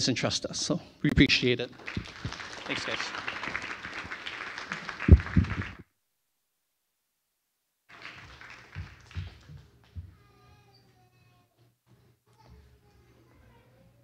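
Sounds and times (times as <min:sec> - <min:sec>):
audience applauding: 0:01.7 - 0:05.8, 0:07.9 - 0:09.8.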